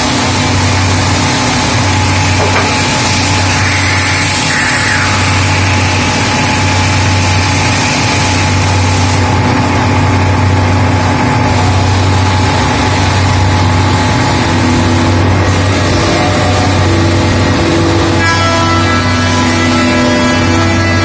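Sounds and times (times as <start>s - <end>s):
woodworking machine drone: 0.0s - 21.0s.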